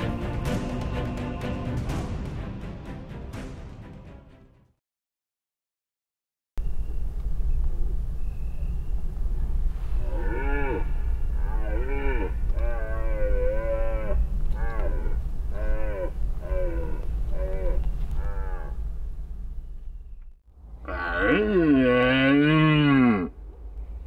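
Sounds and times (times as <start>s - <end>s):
steady low rumble: 6.6s - 10.1s, 12.3s - 20.8s
deer stag roaring: 10.0s - 18.8s, 20.8s - 23.4s.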